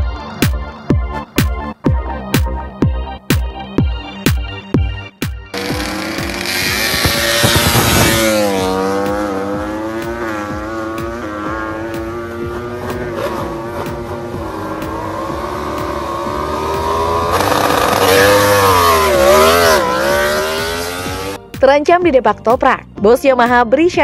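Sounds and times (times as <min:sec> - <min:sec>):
motorcycle engine running: 0:05.5 - 0:21.5.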